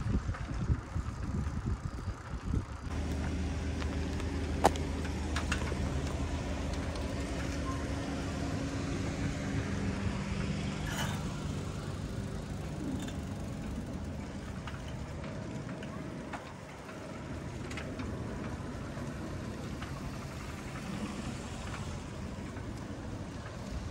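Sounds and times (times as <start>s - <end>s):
vehicle engine running: 0.1s - 23.9s.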